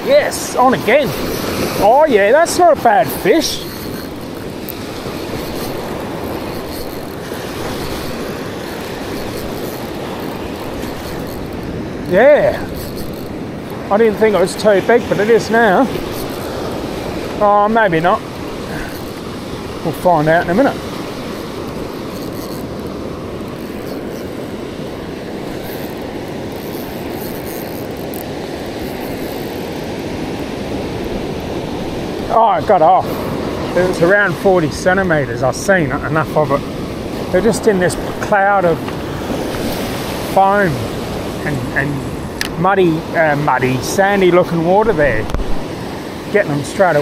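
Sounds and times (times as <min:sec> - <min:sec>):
surf washing: 0:00.0 - 0:47.0
fishing reel cranking: 0:00.3 - 0:45.3
wind noise: 0:36.1 - 0:43.8, 0:44.9 - 0:46.8.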